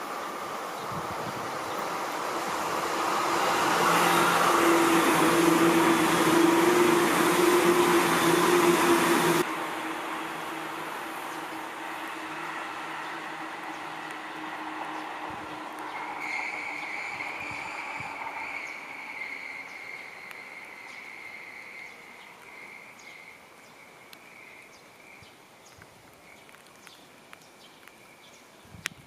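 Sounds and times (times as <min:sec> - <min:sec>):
electric train running: 0:00.1 - 0:21.8
high wheel squeal: 0:03.2 - 0:09.4, 0:15.9 - 0:22.9.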